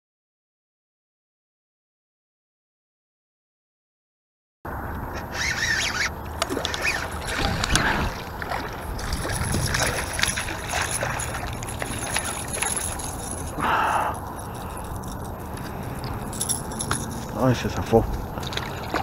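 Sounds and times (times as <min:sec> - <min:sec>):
fish splashing at surface: 0:06.4 - 0:13.5, 0:18.3 - 0:19.0.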